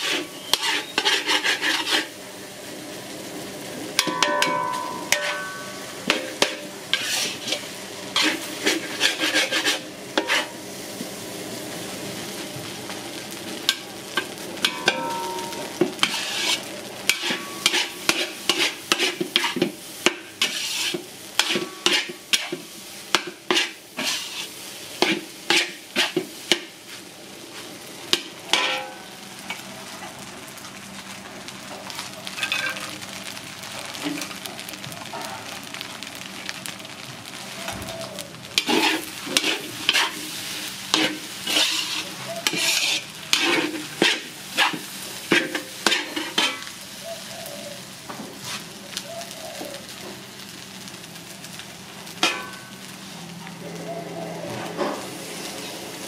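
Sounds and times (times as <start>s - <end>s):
metal spatula scraping a wok: 0.0s - 2.2s, 4.0s - 10.6s, 13.7s - 26.7s, 28.1s - 29.6s, 32.4s - 32.9s, 38.5s - 46.8s, 52.2s - 52.8s
rice sizzling: 0.0s - 56.0s.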